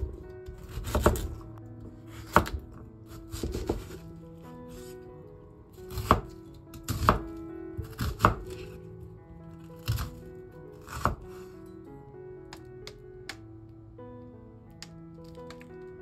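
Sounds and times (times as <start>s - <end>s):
soft background music: 0.0s - 16.0s
knife chopping on wooden board: 0.6s - 1.3s, 2.1s - 4.0s, 5.9s - 8.7s, 9.8s - 10.2s, 10.8s - 11.4s.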